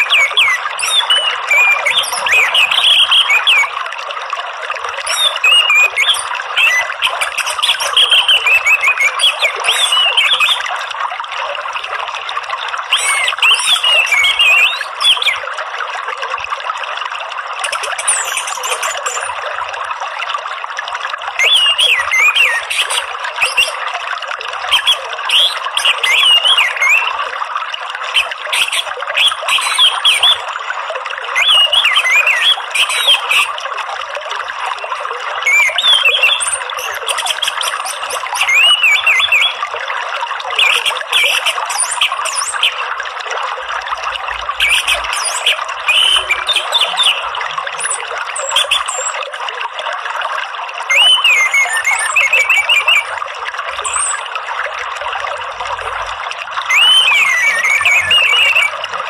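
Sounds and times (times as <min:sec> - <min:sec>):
thrush singing whistled phrases: 0:00.0 - 0:03.8, 0:04.9 - 0:10.8, 0:12.9 - 0:15.5, 0:17.6 - 0:19.4, 0:21.4 - 0:23.9, 0:24.6 - 0:27.2, 0:28.1 - 0:33.6, 0:34.8 - 0:39.7, 0:40.6 - 0:42.9, 0:44.6 - 0:49.2, 0:50.9 - 0:53.2, 0:53.8 - 0:54.3, 0:56.6 - 0:58.9
running water: 0:00.0 - 0:59.0.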